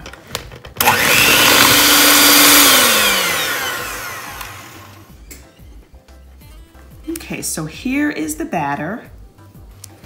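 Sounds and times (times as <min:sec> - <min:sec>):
electric hand mixer whining: 0:00.8 - 0:05.2.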